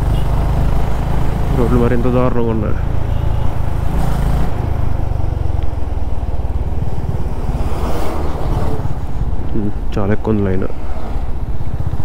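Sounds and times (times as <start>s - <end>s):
motorcycle engine running: 0.0s - 9.8s, 11.1s - 12.0s
road noise: 0.0s - 12.0s.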